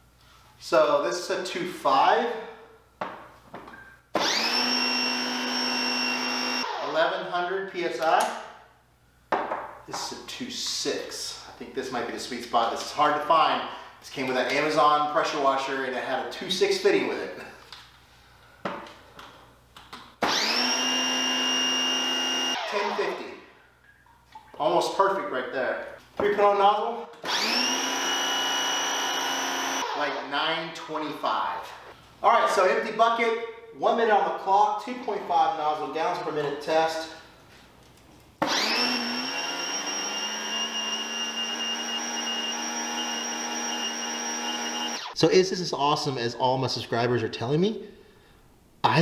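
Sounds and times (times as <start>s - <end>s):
pressure washer motor whining: 4.2s - 7.0s, 20.2s - 23.0s, 27.2s - 30.2s, 38.4s - 45.2s.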